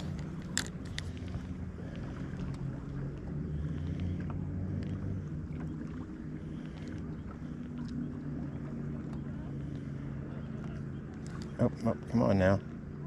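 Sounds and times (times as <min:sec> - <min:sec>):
boat motor humming: 0:00.0 - 0:13.0
light clicks: 0:10.6 - 0:11.6.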